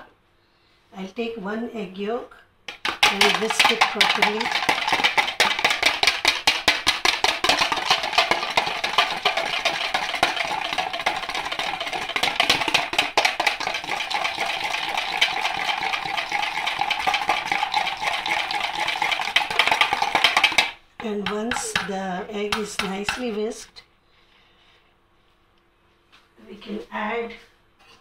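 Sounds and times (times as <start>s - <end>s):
whisk beating in plastic bowl: 2.7s - 23.5s.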